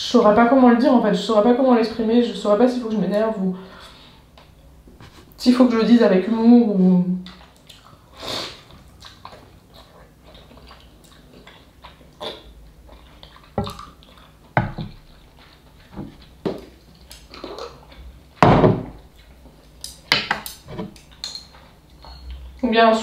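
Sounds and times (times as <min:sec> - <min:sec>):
slurping and chewing: 0:07.2 - 0:18.4.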